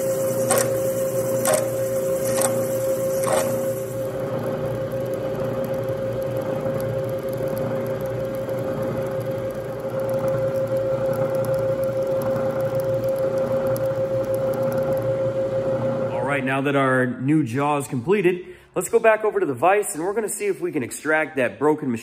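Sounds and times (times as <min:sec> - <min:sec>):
metal cutting noise: 0:00.0 - 0:13.1
milling machine spindle whine: 0:00.0 - 0:16.2
sharp ticks: 0:00.3 - 0:03.6, 0:04.8 - 0:15.1.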